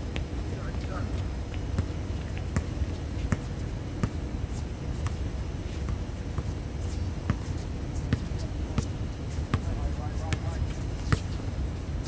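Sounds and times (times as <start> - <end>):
basketball bouncing on court: 5.0 - 5.2, 7.2 - 9.7.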